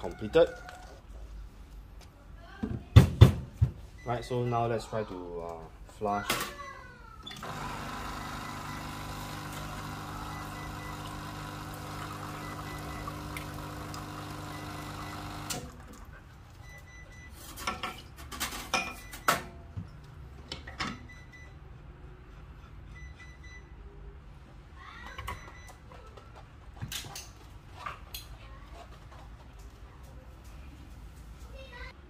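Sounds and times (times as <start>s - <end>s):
espresso machine pump hum: 7.4s - 15.7s.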